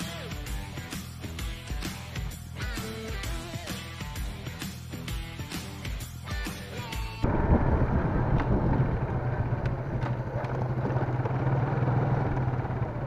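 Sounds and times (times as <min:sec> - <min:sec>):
rock music: 0:00.0 - 0:07.5
road and wind noise: 0:07.2 - 0:13.0
motorcycle engine running: 0:07.3 - 0:13.0.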